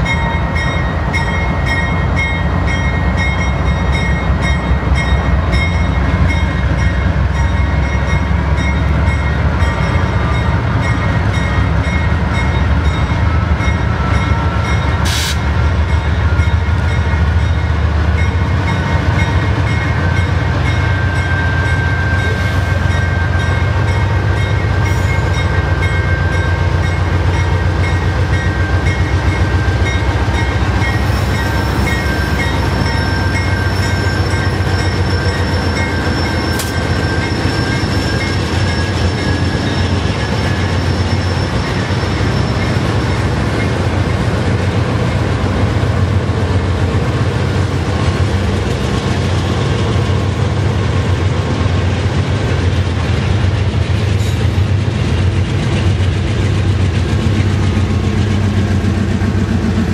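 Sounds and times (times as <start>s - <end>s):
diesel locomotive engine rumble: 0.0s - 59.9s.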